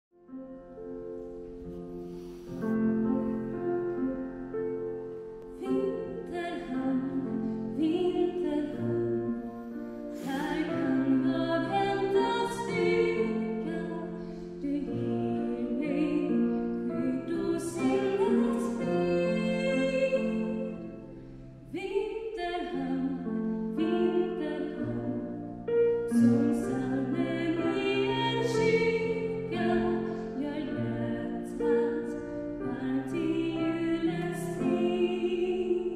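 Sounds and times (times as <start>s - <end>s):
woman singing slow song: 10.2s - 20.8s, 26.1s - 35.9s.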